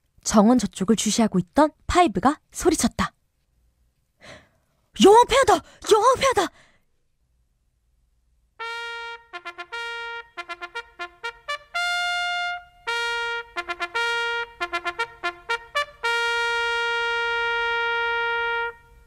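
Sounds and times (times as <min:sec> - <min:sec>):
trumpet fanfare: 0:08.6 - 0:19.0.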